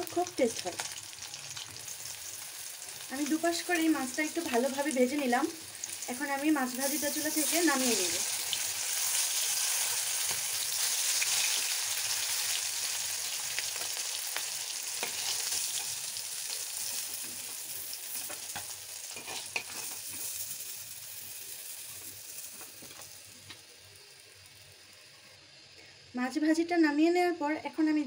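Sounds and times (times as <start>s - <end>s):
fish sizzling in hot oil: 0.0s - 25.8s
metal spatula scraping and tapping: 15.0s - 15.9s, 18.2s - 20.3s.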